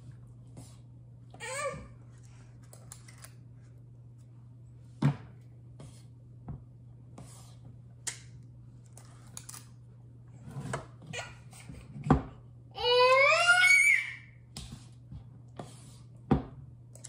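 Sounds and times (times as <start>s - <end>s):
steady low hum: 0.0s - 12.8s.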